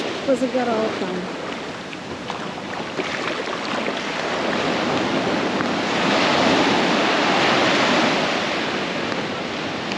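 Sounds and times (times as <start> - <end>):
ocean surf washing ashore: 0.0 - 9.9.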